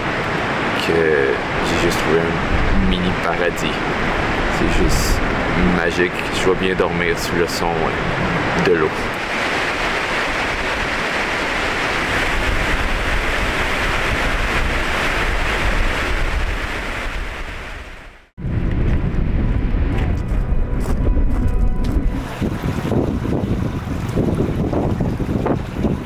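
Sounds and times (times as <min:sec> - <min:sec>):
wind buffeting the microphone: 0:01.5 - 0:26.0
river water rushing over rocks: 0:08.0 - 0:15.8.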